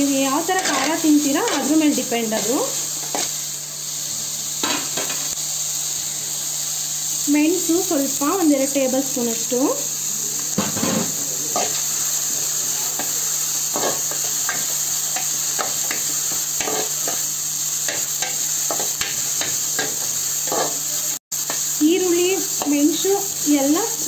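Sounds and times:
food sizzling in oil: 0:00.0 - 0:24.0
spatula scraping metal pan: 0:00.6 - 0:01.8.

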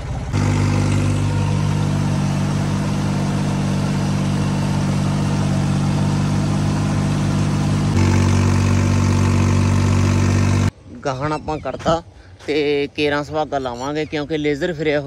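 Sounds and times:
tractor engine under load: 0:00.0 - 0:10.7.

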